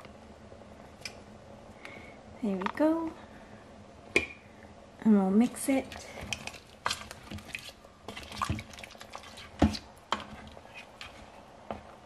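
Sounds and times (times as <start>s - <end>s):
stew sloshing while stirred: 5.4s - 11.5s.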